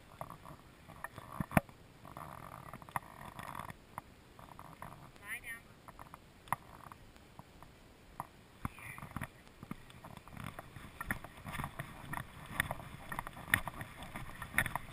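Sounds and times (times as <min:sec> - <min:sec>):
soft thumps and rustling: 0:08.2 - 0:14.9
wind on microphone: 0:08.6 - 0:14.9.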